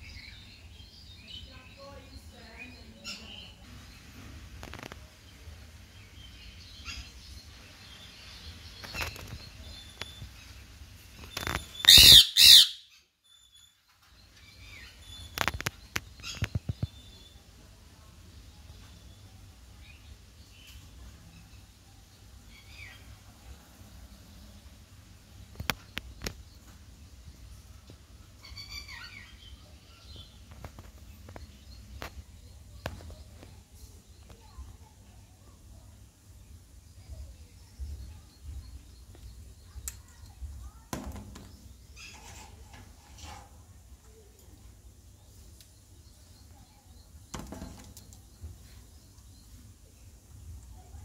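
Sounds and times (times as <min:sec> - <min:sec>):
faint parakeet calls: 0:11.4 - 0:13.7
parakeet squawking: 0:11.9 - 0:12.8.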